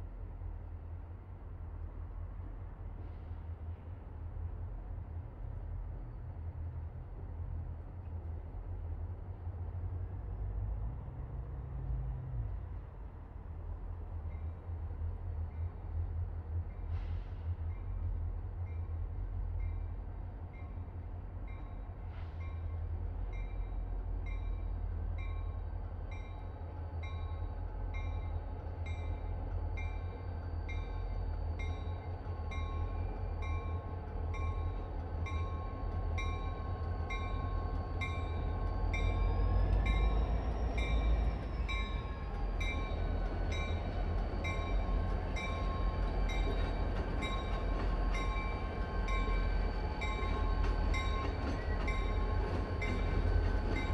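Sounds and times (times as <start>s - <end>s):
locomotive engine rumble: 9.6s - 53.9s
locomotive bell ringing: 29.8s - 53.9s.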